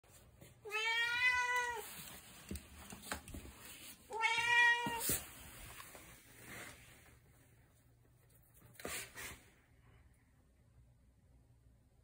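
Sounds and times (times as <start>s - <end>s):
cat meowing: 0.6s - 1.9s, 4.1s - 5.2s.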